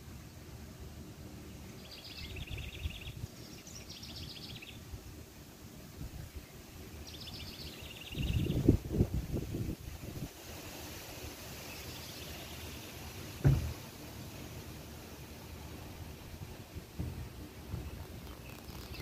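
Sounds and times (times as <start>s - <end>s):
songbird trilling: 1.6s - 4.8s, 6.4s - 8.7s, 18.2s - 19.0s
wind rumble on microphone: 7.9s - 10.6s.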